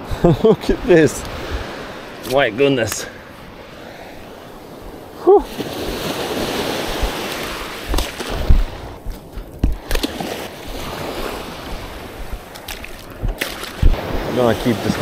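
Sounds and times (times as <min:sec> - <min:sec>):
water rushing and splashing: 0:00.0 - 0:15.0
brief vocal sound: 0:05.2 - 0:05.5
low thumps: 0:06.8 - 0:10.0, 0:10.6 - 0:14.3.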